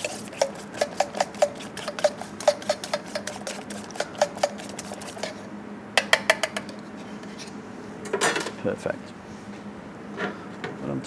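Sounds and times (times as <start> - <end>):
whisk ticking against metal tray: 0.0 - 5.3.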